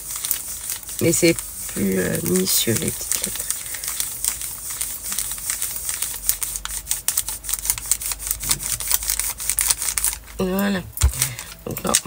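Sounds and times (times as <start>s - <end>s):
iron scratching on plastic film: 0.0s - 10.4s.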